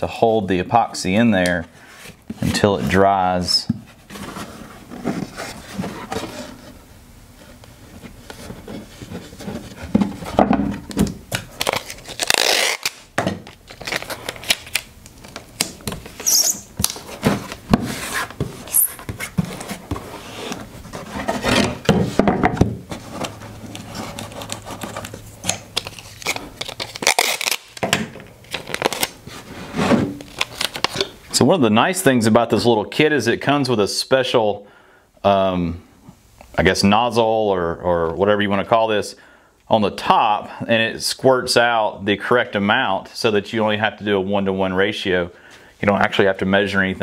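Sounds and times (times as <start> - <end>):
tape ripping off roll: 10.9 - 20.6, 22.9 - 31.1.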